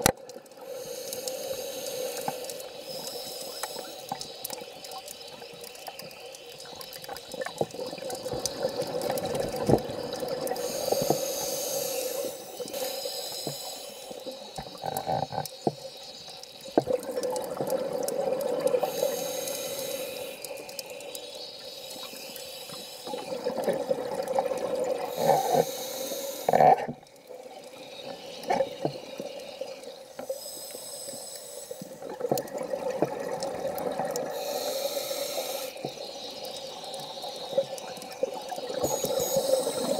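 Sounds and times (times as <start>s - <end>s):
exhaled bubbles hissing: 0.0s - 39.9s
small clicks: 0.0s - 39.9s
diver breathing through regulator: 0.6s - 4.1s, 10.6s - 14.2s, 18.8s - 20.5s, 25.1s - 26.8s, 34.3s - 35.8s.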